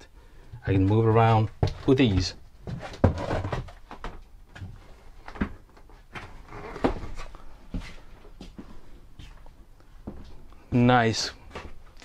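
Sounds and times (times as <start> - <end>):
footsteps on floor: 0.8 - 10.4.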